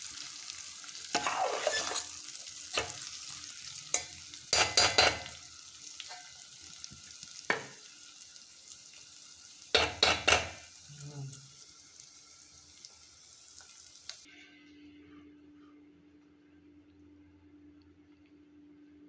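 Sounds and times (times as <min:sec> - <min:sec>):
faint sizzle: 0:00.0 - 0:19.0
metal spoon scraping a pot: 0:01.1 - 0:03.0.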